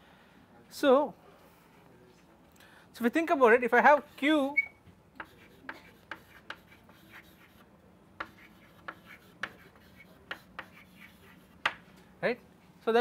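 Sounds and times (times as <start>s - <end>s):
chalk writing on a chalkboard: 3.9s - 4.4s, 5.2s - 11.9s.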